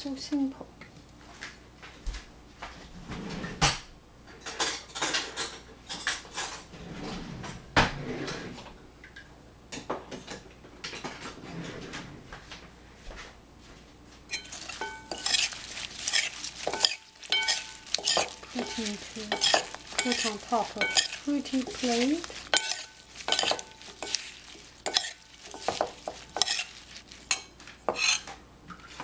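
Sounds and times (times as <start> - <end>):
dishes and utensils clinking: 14.3 - 29.0.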